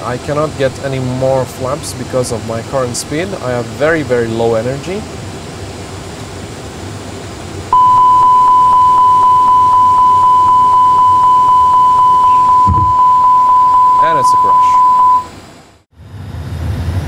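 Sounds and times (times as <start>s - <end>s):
low cockpit hum: 7.7s - 15.4s
high-pitched warning tone: 7.8s - 15.4s.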